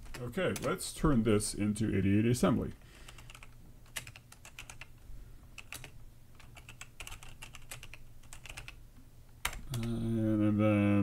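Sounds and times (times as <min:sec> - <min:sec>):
typing on computer keyboard: 0:03.1 - 0:05.0, 0:05.6 - 0:08.8.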